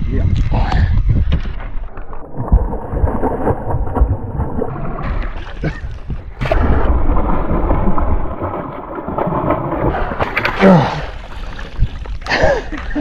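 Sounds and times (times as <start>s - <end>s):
wind rumble on microphone: 0.0s - 8.5s
fish thrashing and splashing: 1.8s - 12.2s.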